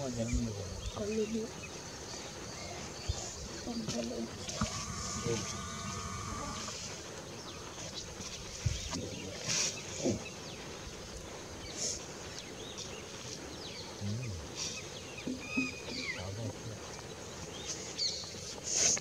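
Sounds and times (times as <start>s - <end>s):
steady high hiss: 0.0s - 19.0s
short chirping calls: 14.6s - 16.4s.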